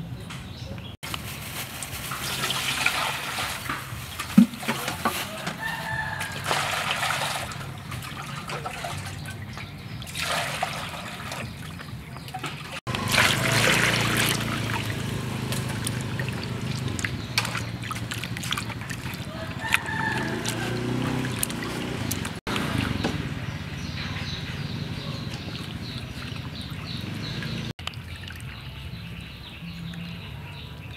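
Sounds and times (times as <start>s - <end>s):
water sloshing in steel bowl: 1.4s - 23.5s, 24.2s - 28.8s
chickens calling: 10.8s - 27.7s.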